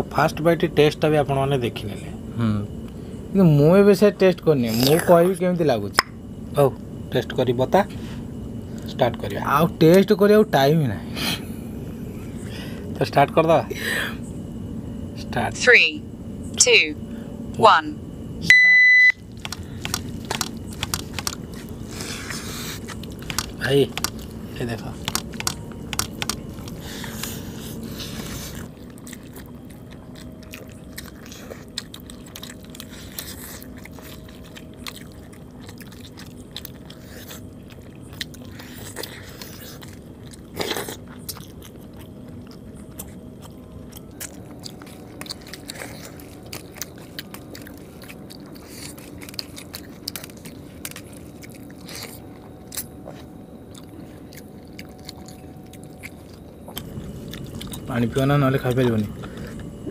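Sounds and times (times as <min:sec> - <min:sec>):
faint steady hum: 0:00.0 - 0:59.9
chewing and biting: 0:04.6 - 0:05.3, 0:19.2 - 0:59.9.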